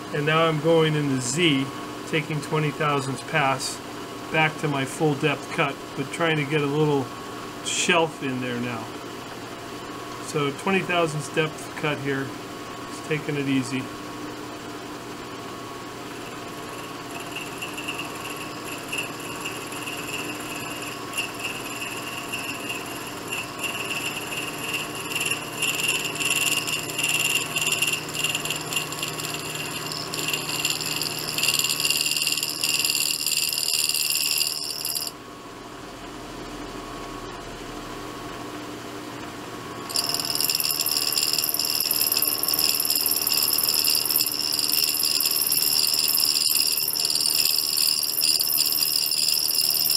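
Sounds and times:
milling machine running: 16.2 - 35.1, 39.9 - 49.9.

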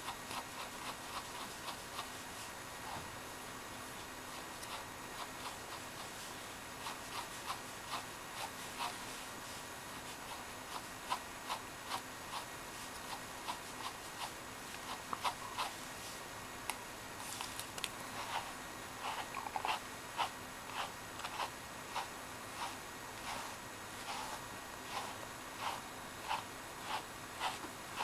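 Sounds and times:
brush raking through dog fur: 18.1 - 28.0.

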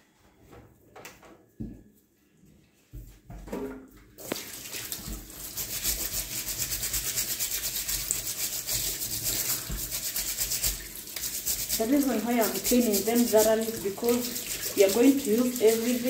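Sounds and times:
tap water running into sink: 4.2 - 16.0
scrubbing rough rind: 5.4 - 16.0.

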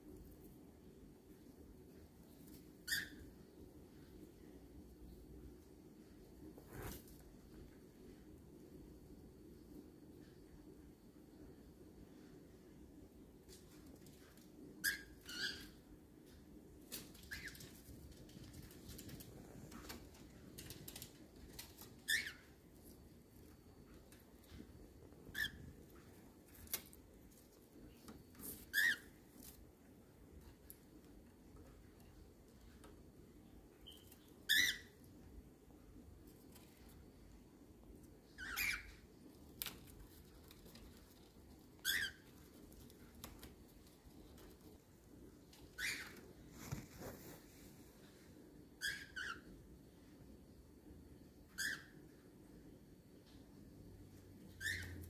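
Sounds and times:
cockatiel chirping: 2.8 - 3.4, 14.8 - 15.8, 17.2 - 17.7, 21.8 - 22.5, 25.3 - 25.7, 28.4 - 29.2, 33.8 - 35.0, 38.4 - 39.0, 41.8 - 42.4, 45.8 - 46.2, 48.8 - 49.5, 51.5 - 52.0, 54.6 - 55.0.

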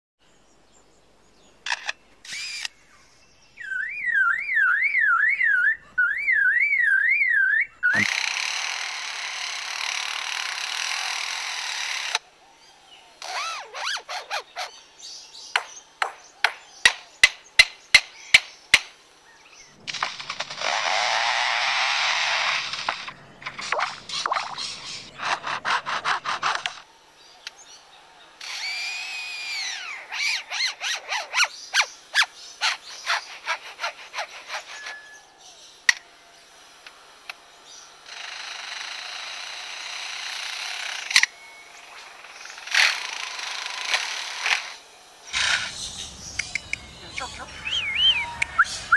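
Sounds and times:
lyrebird buzzing: 1.7 - 2.8, 7.8 - 12.3, 13.1 - 26.9, 27.5 - 48.9
whistled bird notes: 2.3 - 8.0, 34.5 - 35.4, 45.3 - 48.9
lyrebird mimicking clicks: 45.4 - 48.9.

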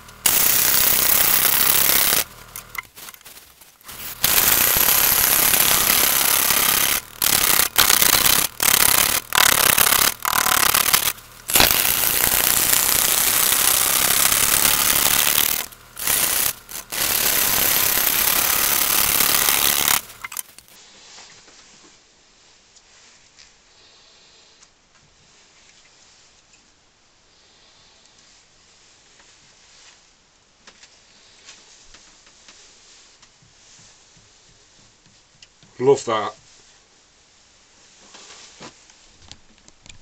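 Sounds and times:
wood lathe rough cutting log: 0.0 - 2.8, 3.9 - 20.7.

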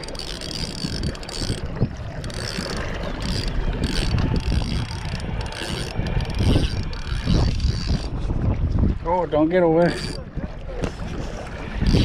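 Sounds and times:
fishing reel ratchet clicking: 0.0 - 8.1, 9.9 - 10.2.

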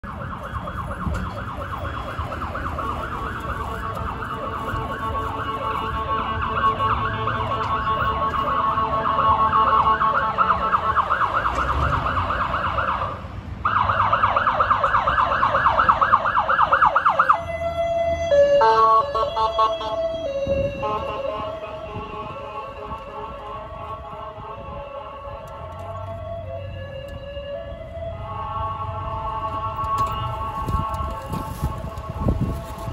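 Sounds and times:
ambulance siren warbling: 0.0 - 32.9.

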